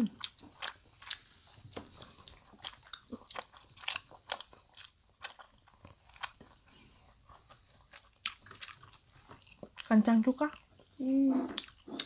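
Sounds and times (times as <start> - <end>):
chewing and biting: 0.2 - 12.0.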